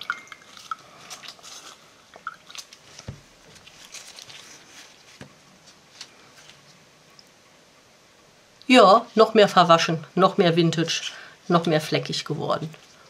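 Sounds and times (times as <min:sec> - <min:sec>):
wet fabric squishing: 0:00.0 - 0:05.1.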